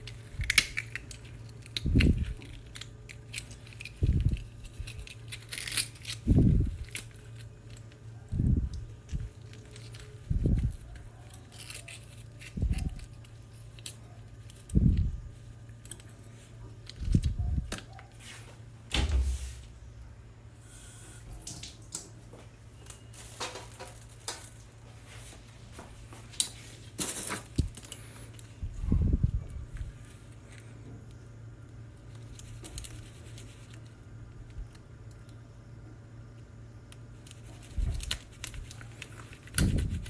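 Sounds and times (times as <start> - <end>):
knife scraping oyster shells: 0.0 - 7.9, 9.4 - 14.7
steady low hum: 0.0 - 40.0.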